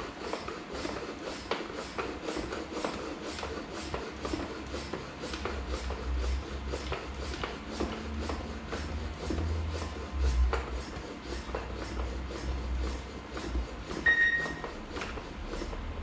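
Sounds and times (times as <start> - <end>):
hand pump hissing: 0.1 - 16.0.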